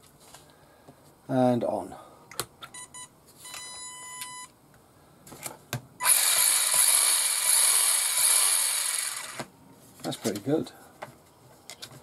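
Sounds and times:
power-on beep: 2.8 - 4.5
electric motor whirring: 6.0 - 9.5.

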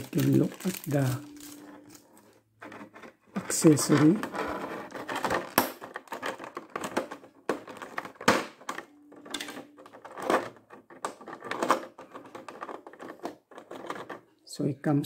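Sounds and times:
plastic tray clicks and crackles: 5.0 - 14.2.

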